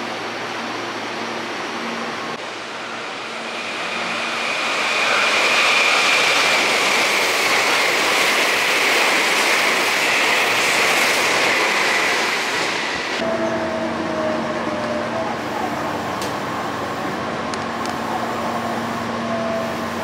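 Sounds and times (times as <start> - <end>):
electric train passing at speed: 0.0 - 20.0
high train whine: 0.0 - 20.0.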